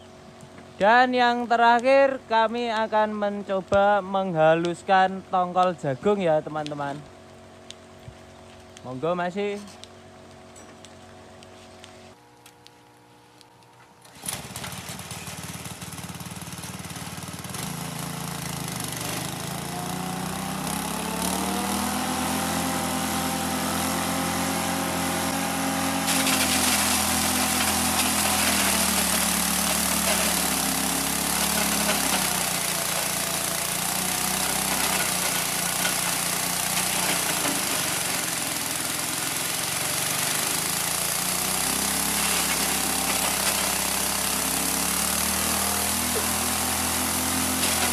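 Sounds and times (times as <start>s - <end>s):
small engine running: 14.0s - 47.9s
corn grinding: 14.1s - 47.9s.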